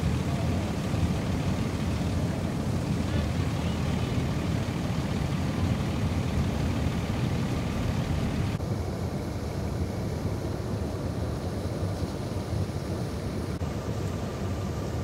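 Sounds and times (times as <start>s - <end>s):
fire engine running: 0.0s - 8.6s
water gushing from hydrant: 0.0s - 8.6s.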